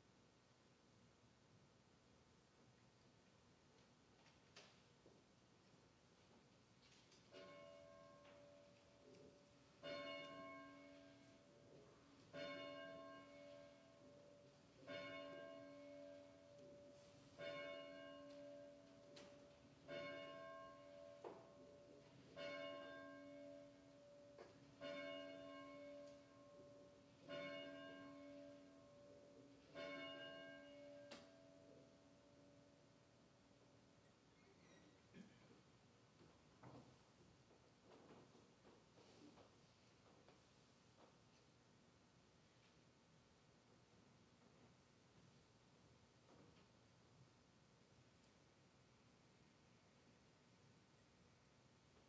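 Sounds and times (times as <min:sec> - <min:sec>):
church bell tolling faintly: 0:07.3 - 0:32.9.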